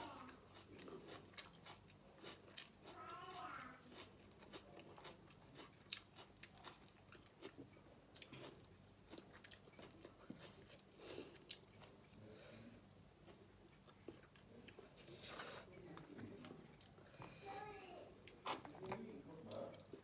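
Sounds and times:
person chewing and lip-smacking: 0:00.5 - 0:12.2.

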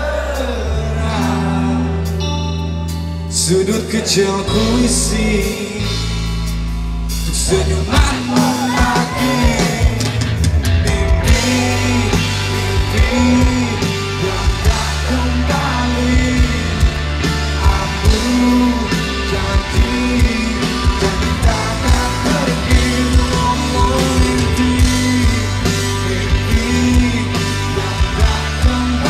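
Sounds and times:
bass line: 0:00.0 - 0:29.0
electric guitars: 0:00.0 - 0:29.0
drum beat: 0:07.8 - 0:27.1.

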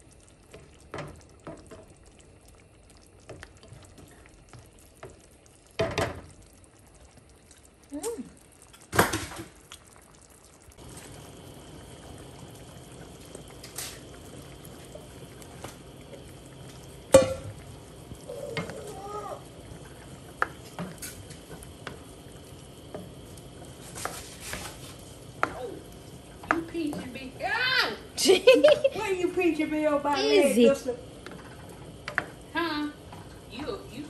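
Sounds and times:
spoon knocking pan: 0:17.1 - 0:17.6, 0:25.3 - 0:25.6, 0:26.4 - 0:27.2
spoon stirring and scraping stew: 0:23.0 - 0:25.6.

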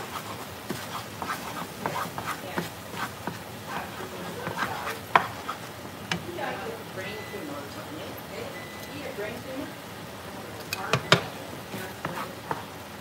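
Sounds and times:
spatula scraping in frying pan: 0:00.0 - 0:07.5, 0:10.9 - 0:13.0.

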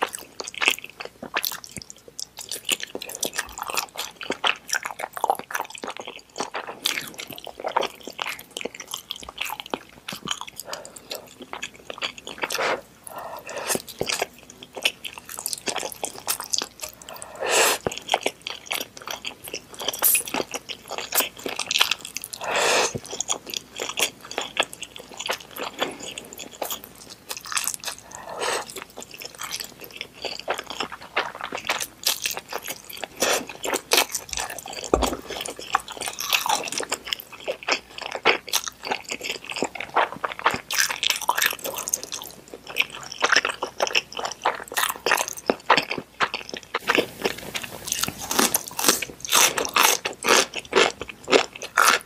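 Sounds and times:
chewing with wet mouth clicks: 0:00.0 - 0:52.0
person slurping noodles: 0:12.4 - 0:13.9, 0:16.9 - 0:17.9, 0:22.4 - 0:23.0, 0:27.9 - 0:28.8.

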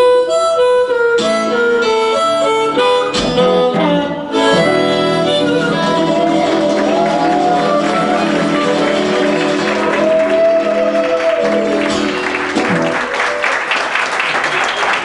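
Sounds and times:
harmonica blues melody: 0:00.0 - 0:12.8
strummed acoustic guitar: 0:01.2 - 0:13.0.

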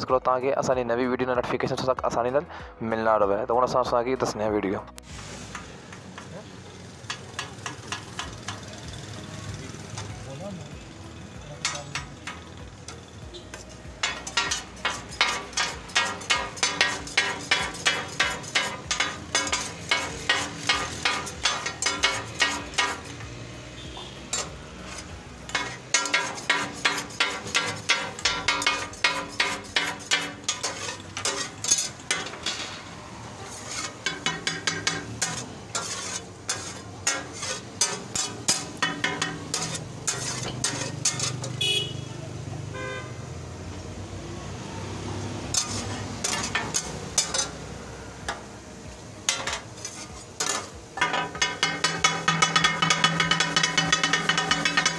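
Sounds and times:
light frying sizzle: 0:05.0 - 0:11.2, 0:12.0 - 0:54.9
metal spatula clacking on griddle: 0:07.0 - 0:08.8, 0:11.6 - 0:23.3, 0:24.3 - 0:41.6, 0:45.5 - 0:48.5, 0:49.2 - 0:54.9.

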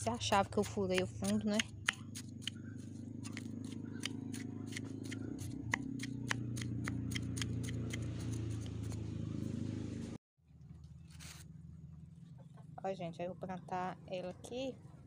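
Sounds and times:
tool scraping soil: 0:00.0 - 0:09.0, 0:11.1 - 0:11.4
low hum: 0:00.0 - 0:15.0.

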